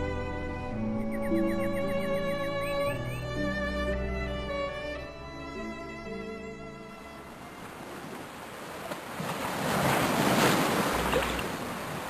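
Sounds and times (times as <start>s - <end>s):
wind: 0.0s - 12.0s
ocean waves washing: 7.0s - 12.0s.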